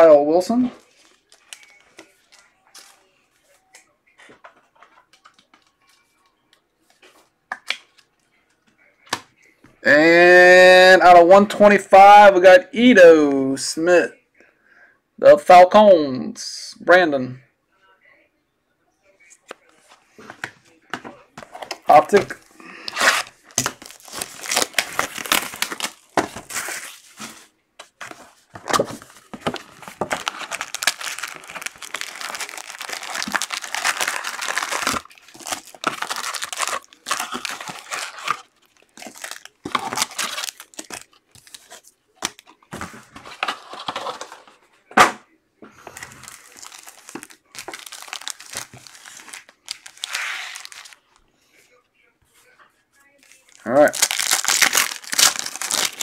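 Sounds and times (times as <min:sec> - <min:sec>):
foil packs crinkling: 0:21.5 - 0:27.4, 0:28.0 - 0:44.4, 0:45.8 - 0:51.0, 0:53.2 - 0:56.0.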